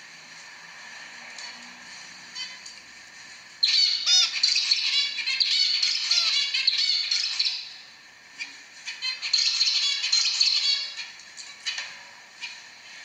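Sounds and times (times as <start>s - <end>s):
faint bird calls: 3.6s - 7.8s
finch singing: 3.6s - 7.8s, 8.4s - 11.8s.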